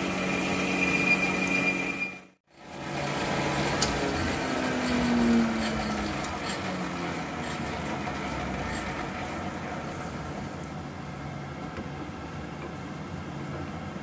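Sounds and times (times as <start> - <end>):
metal lathe running: 0.0 - 10.7.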